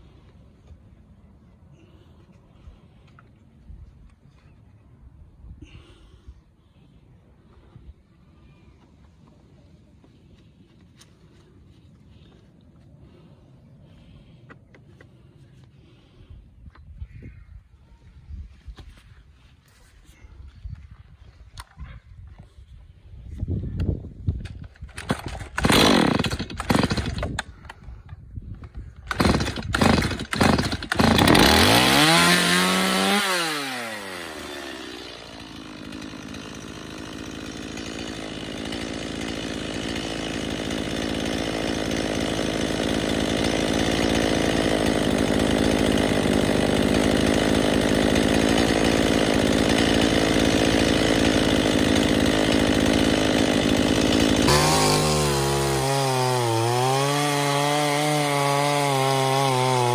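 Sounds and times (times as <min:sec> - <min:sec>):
chainsaw running and revving: 0:25.0 - 0:27.4, 0:29.1 - 0:59.9.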